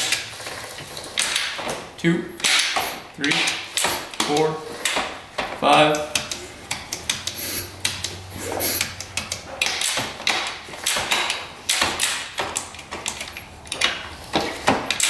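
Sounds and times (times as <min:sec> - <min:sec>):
gear lever clicks and clunks: 0:06.0 - 0:15.0.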